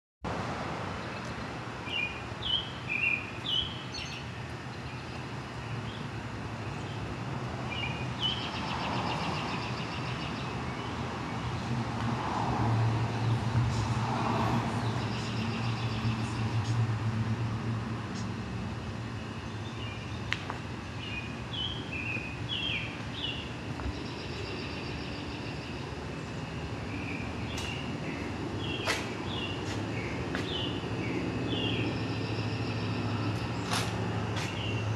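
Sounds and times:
birds chirping: 1.1 - 7.1, 7.7 - 11.6, 19.4 - 34.9.

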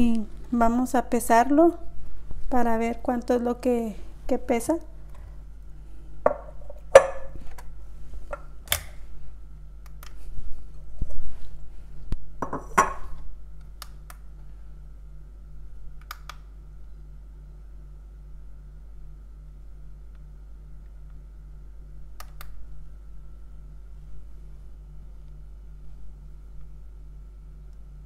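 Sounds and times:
ceramic bowl knocking on countertop: 6.3 - 7.3, 12.4 - 13.0.

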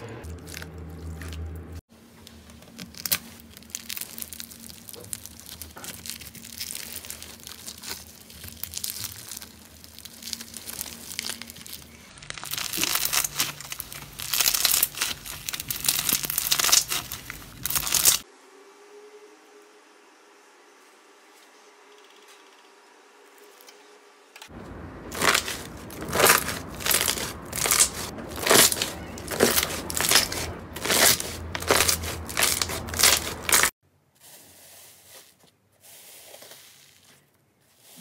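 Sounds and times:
slime crackling and popping: 2.6 - 18.2, 25.1 - 33.7.

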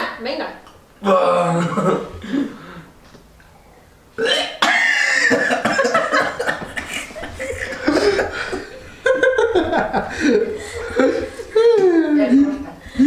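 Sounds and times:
man belching: 1.0 - 2.8, 4.2 - 5.7
man retching: 1.0 - 2.9, 4.2 - 8.6.

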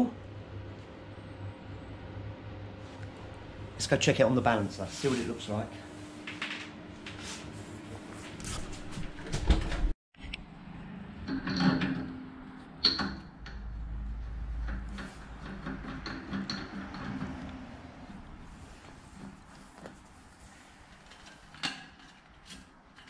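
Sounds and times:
wheel clunks knocks and clicks: 11.2 - 19.4.

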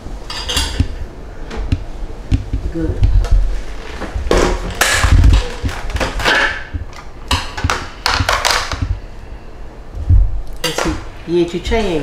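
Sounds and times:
heavy thump: 0.7 - 3.5, 7.6 - 9.0
plastic blender jar knocking: 1.7 - 3.2, 7.6 - 9.0.

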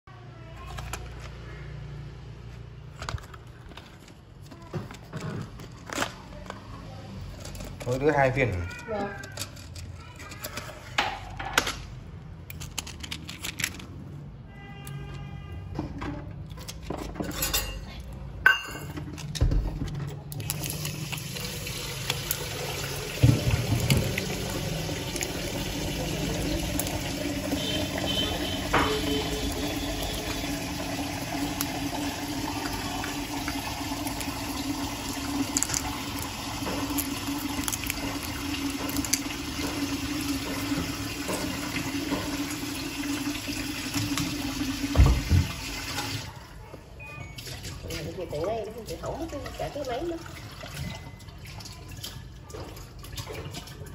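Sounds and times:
tablets dropping into cups: 30.8 - 42.4.

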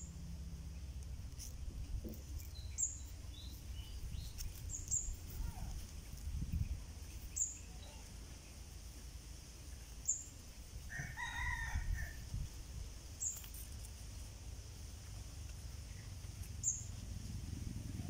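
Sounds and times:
steady low rumble: 0.0 - 10.9, 11.8 - 18.0
rooster crowing: 10.9 - 12.3.

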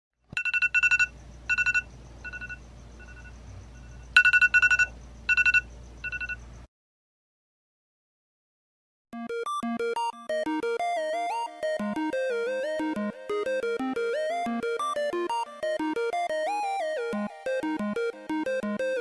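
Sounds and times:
phone alarm beeping: 0.4 - 6.4.

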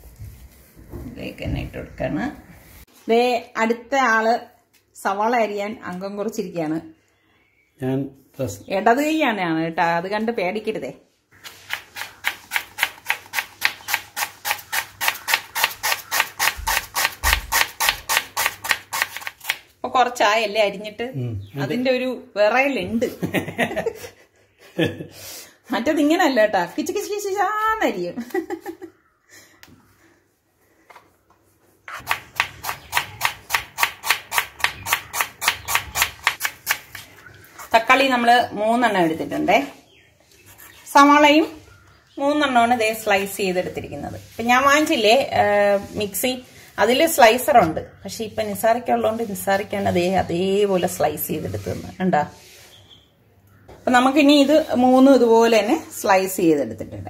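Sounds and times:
knife slicing onion on board: 11.6 - 19.6, 31.9 - 37.0.

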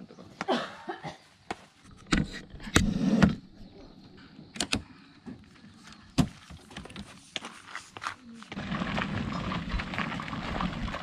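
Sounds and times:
wheels rolling on gravel: 7.4 - 11.0.

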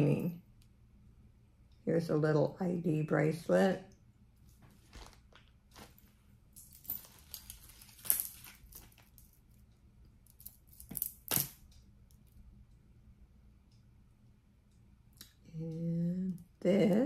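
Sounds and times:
plastic packaging rustling: 4.6 - 6.2, 7.0 - 9.2
jewelry clinking: 5.7 - 9.6, 10.2 - 12.4.

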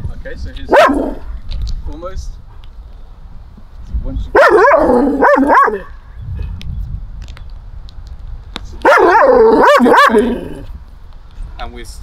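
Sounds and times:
dog barking: 0.7 - 1.2, 4.3 - 5.9, 8.8 - 10.4.

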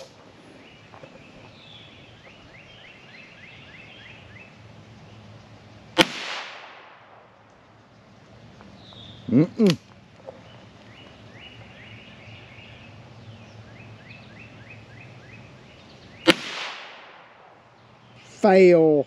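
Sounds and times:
revolver gunshot: 6.0 - 7.3, 16.2 - 17.5.

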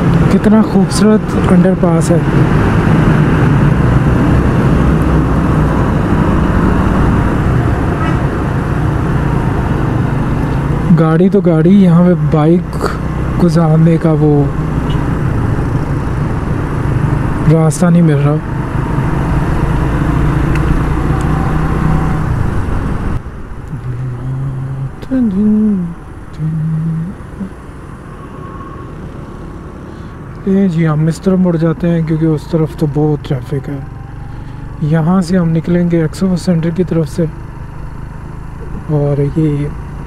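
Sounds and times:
motorcycle engine hum: 0.0 - 40.0
road and wind noise: 0.0 - 40.0
traffic: 0.0 - 40.0
motorcycle engine running: 33.6 - 40.0.

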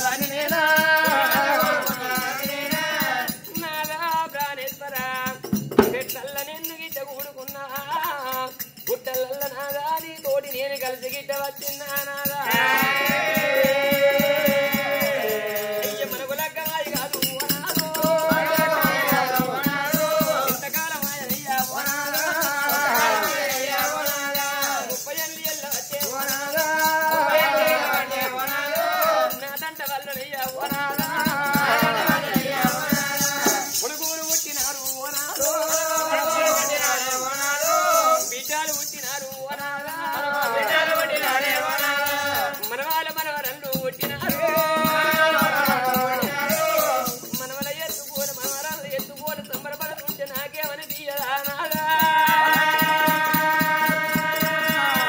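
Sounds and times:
drum beating: 0.0 - 6.6, 12.2 - 38.3, 39.8 - 55.0
jingling bells: 0.0 - 55.0.

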